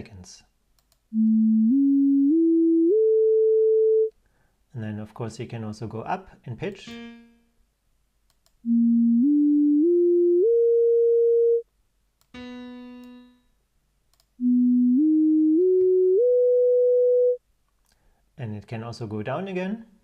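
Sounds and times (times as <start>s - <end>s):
ascending sine tone arpeggio: 8.7s - 11.6s, 14.4s - 17.4s.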